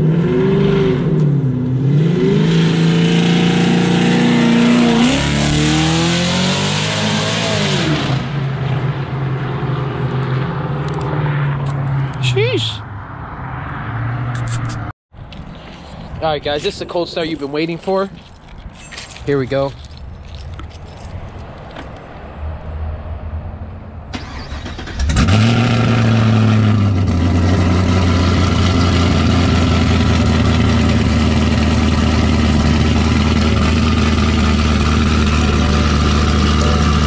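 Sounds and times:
car engine starting and idling: 0:24.1 - 0:37.0.

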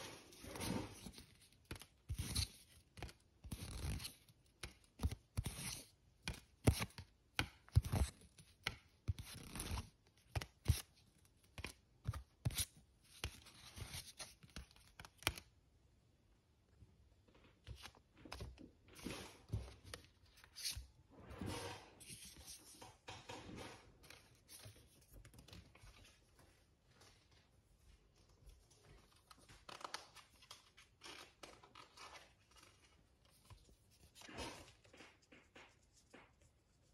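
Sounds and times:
cards tapping and rustling: 0:00.3 - 0:15.5, 0:17.6 - 0:20.9, 0:28.9 - 0:36.6.

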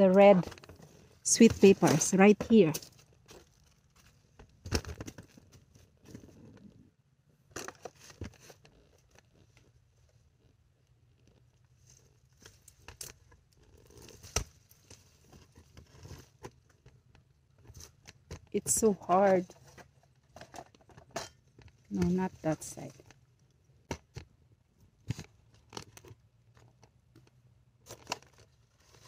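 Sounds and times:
leaves rustling and crinkling: 0:11.8 - 0:16.4, 0:27.8 - 0:29.0.

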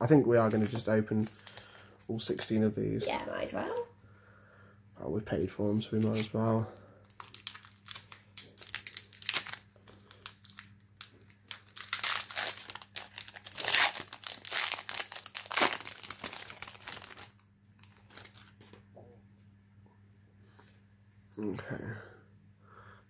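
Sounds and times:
foil wrapper crinkling and tearing: 0:00.4 - 0:01.8, 0:06.0 - 0:06.4, 0:07.1 - 0:18.8.

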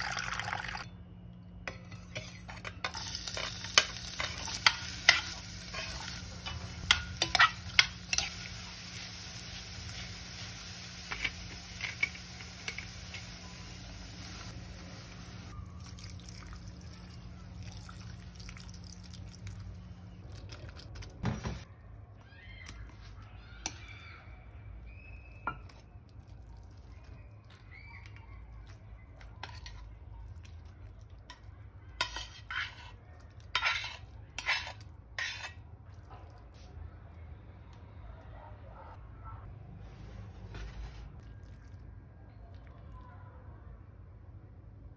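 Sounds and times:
utensils clinking on ceramic bowl: 0:01.7 - 0:08.6.

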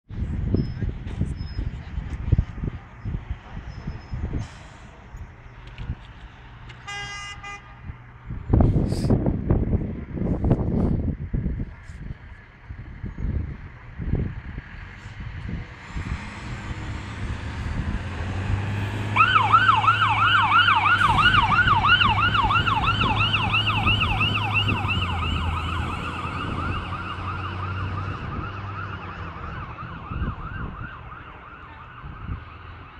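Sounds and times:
truck engine driving past: 0:14.0 - 0:32.9
fire engine siren yelping: 0:16.9 - 0:32.9.

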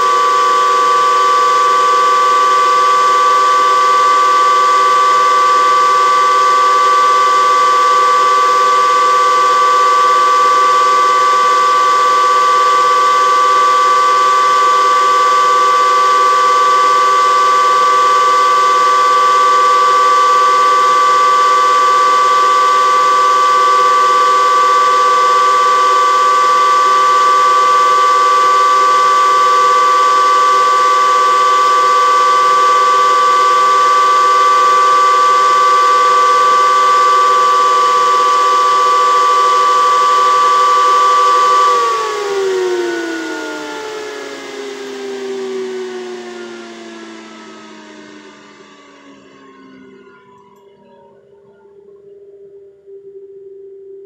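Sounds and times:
cooling fans whining: 0:00.0 - 0:53.4.

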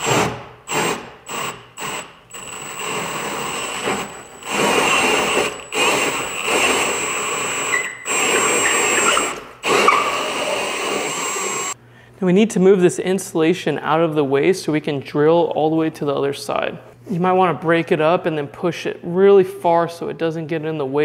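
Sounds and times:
cordless drill cutting drywall: 0:00.0 - 0:11.8.

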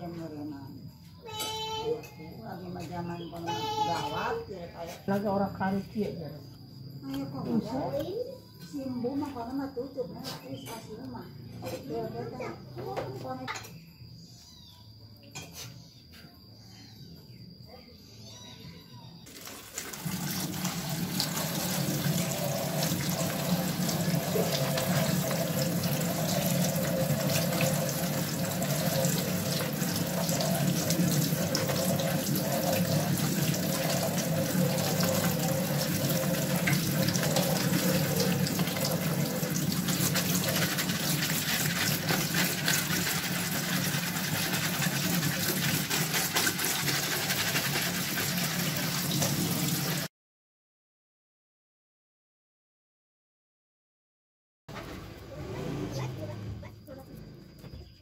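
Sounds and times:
tap water splashing on plastic: 0:19.3 - 0:50.1.

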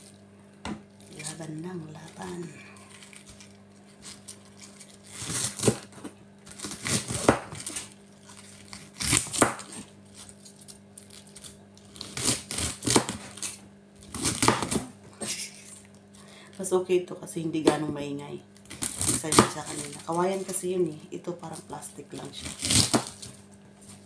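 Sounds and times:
knife chopping on plastic board: 0:05.3 - 0:07.9, 0:09.0 - 0:09.9, 0:12.2 - 0:13.5, 0:14.1 - 0:14.9, 0:18.9 - 0:19.7, 0:22.5 - 0:23.2.

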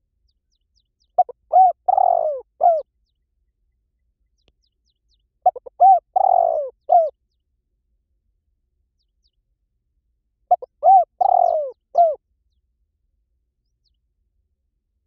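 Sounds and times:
dove cooing: 0:01.2 - 0:02.9, 0:05.4 - 0:07.2, 0:10.5 - 0:12.2.

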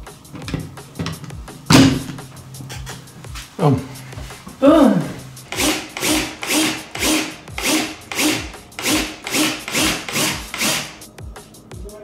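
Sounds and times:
cordless drill boring into wall: 0:05.5 - 0:11.0.

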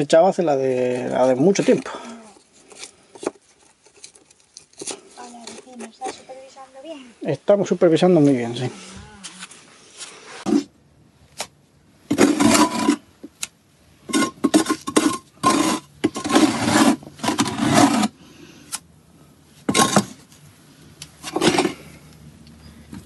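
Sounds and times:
trowel scraping mortar: 0:12.1 - 0:13.1, 0:14.0 - 0:18.2, 0:19.7 - 0:20.3, 0:21.2 - 0:21.9.

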